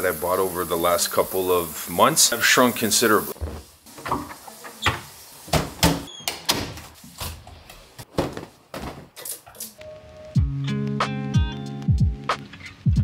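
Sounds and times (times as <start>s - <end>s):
doors opening and shutting: 3.4s - 9.8s
guitar music: 9.9s - 13.0s.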